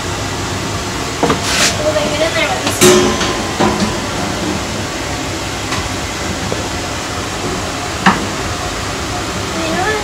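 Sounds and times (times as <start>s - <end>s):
sharp metal clank: 2.8s - 4.9s.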